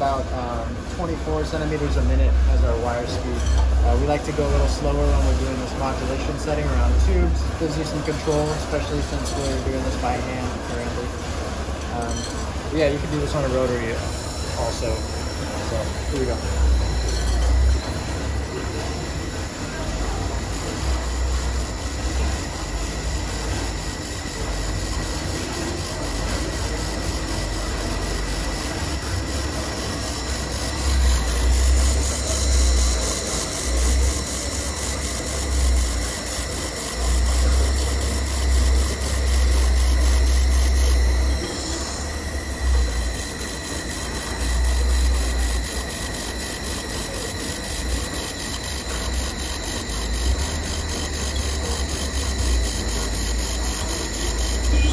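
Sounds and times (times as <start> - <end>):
laser welder whine and hiss: 0.0 - 54.9.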